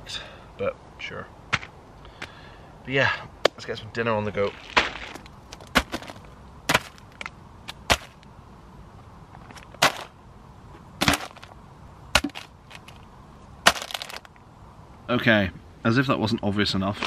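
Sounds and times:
items knocking on plastic tarp: 4.6 - 7.0, 9.8 - 10.1, 12.2 - 12.9, 13.7 - 14.3.

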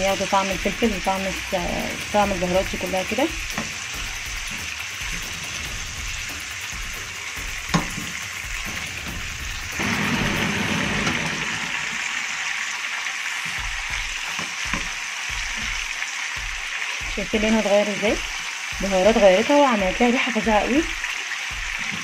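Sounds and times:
meat sizzling in a pan: 0.0 - 22.0.

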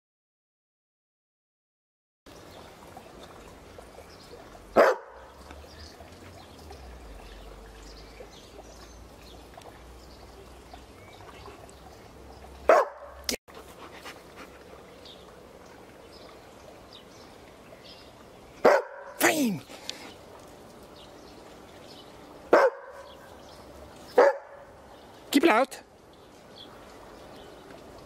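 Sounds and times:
dog barking: 4.8 - 5.3, 12.7 - 13.3, 18.6 - 19.2, 22.5 - 23.1, 24.2 - 24.7.

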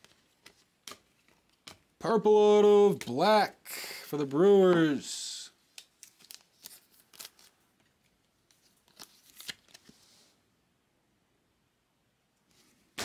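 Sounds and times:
trading card clicks and rustles: 0.0 - 2.0, 5.7 - 10.0.

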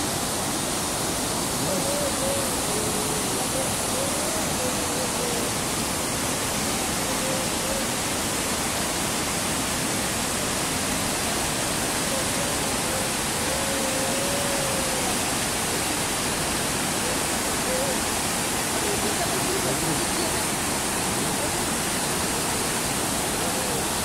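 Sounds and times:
water rushing over rocks: 0.0 - 24.0.

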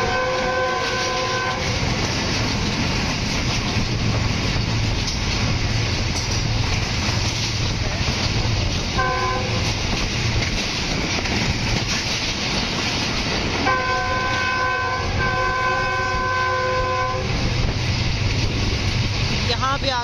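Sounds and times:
locomotive air horn: 0.0 - 1.9, 9.0 - 9.8, 13.6 - 17.6
train running noise: 0.0 - 20.0.

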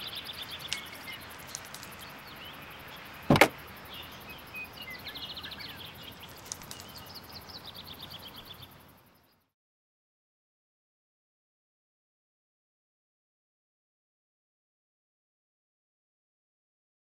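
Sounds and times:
birds chirping: 0.0 - 9.4
outdoor ambience: 0.0 - 9.5
car door clunking open: 3.3 - 3.6.

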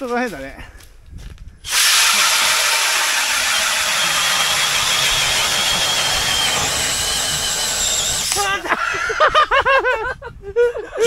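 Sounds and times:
power ice auger whirring: 1.7 - 8.6.

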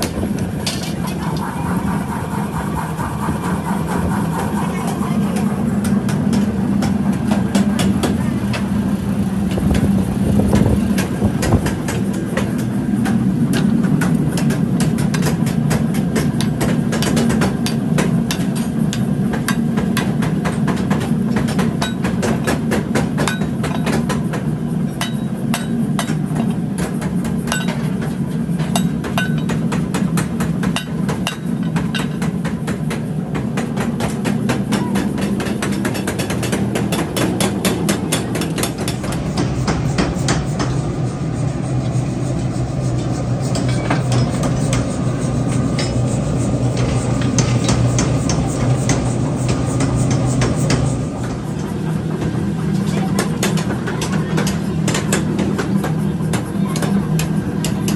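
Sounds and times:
motor humming: 38.7 - 52.1.

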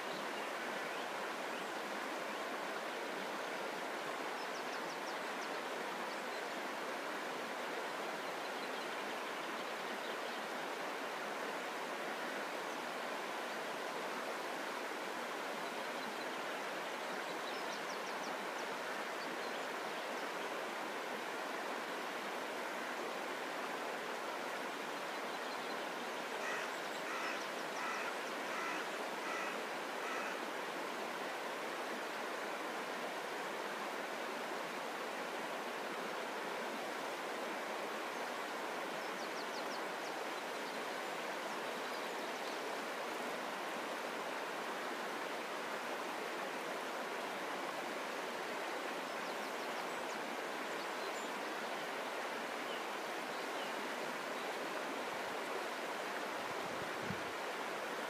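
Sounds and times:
river water rushing: 0.0 - 58.0
bird calling: 26.4 - 30.4.

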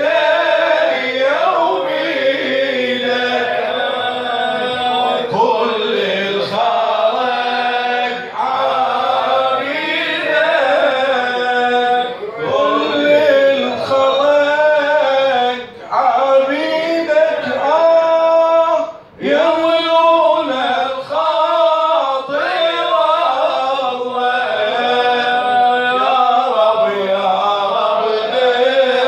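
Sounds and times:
men singing through a pa: 0.0 - 29.0.

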